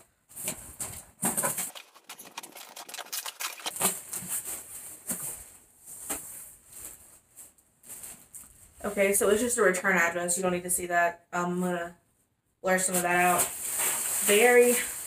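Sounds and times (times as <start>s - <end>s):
plastic packing crinkling: 1.3s - 4.5s.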